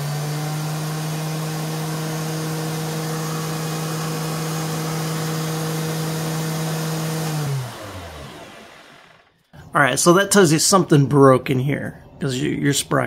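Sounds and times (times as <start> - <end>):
thickness planer motor humming: 0.0 - 9.5.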